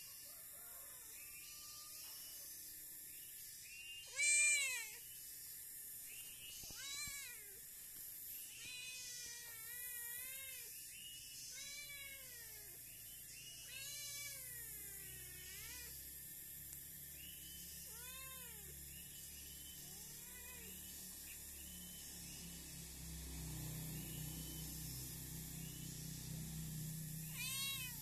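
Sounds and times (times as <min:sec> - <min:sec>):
cat meowing: 0:04.1 - 0:05.0, 0:06.7 - 0:07.5, 0:11.5 - 0:12.7, 0:13.7 - 0:15.9, 0:27.3 - 0:28.0.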